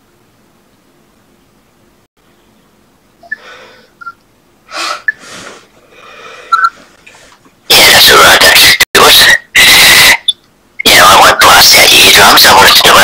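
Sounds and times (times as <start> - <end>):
man breathing heavily: 3.4 - 4.0, 4.7 - 7.4.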